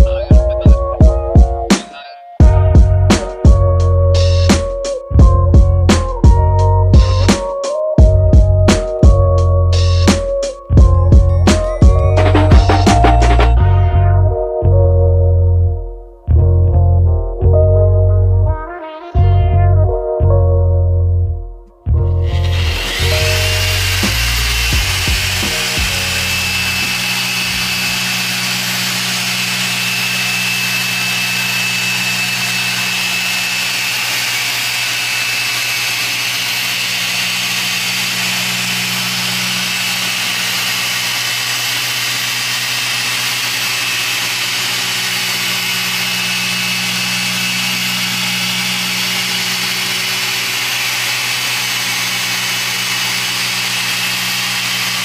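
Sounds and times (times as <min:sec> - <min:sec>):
machine polisher running: 0:08.1 - 0:13.6, 0:22.2 - 0:55.0.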